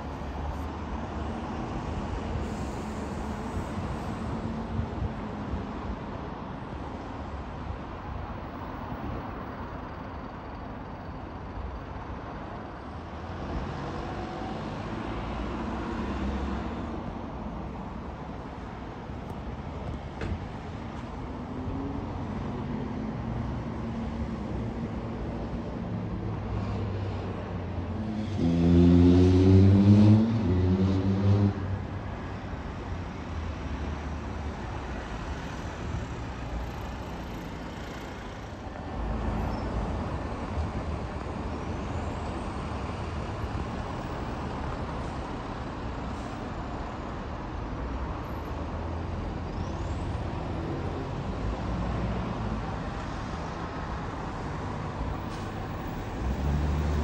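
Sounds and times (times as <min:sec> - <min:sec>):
road traffic: 0:00.0 - 0:57.0
diesel bus engine pulling away: 0:48.8 - 0:57.0.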